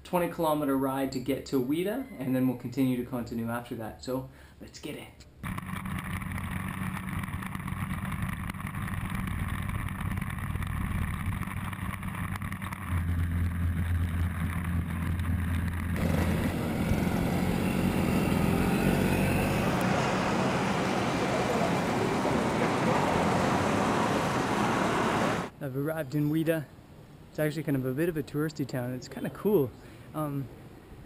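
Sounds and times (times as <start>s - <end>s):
motorcycle engine running: 5.4s - 25.5s
wind and road noise: 5.4s - 25.5s
traffic noise: 13.0s - 25.5s.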